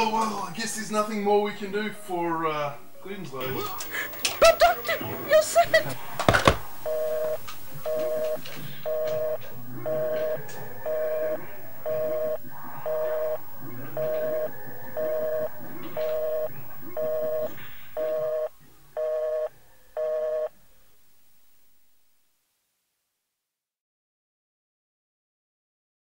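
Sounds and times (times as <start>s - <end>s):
faint background voices: 0.0s - 20.9s
telephone busy signal beeping: 6.8s - 20.5s.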